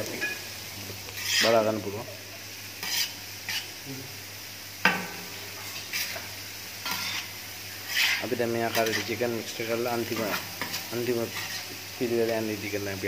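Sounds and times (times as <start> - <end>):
vegetables sizzling on griddle: 0.0 - 13.0
metal spatula scraping griddle: 1.2 - 1.7, 2.8 - 3.8, 5.6 - 11.8.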